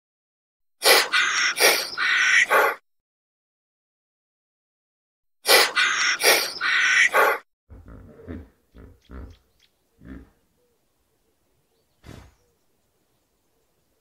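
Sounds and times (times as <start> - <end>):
hippopotamus calling: 0.8 - 2.8, 5.5 - 10.8
hippopotamus deep grunts: 7.7 - 9.4, 10.0 - 10.4.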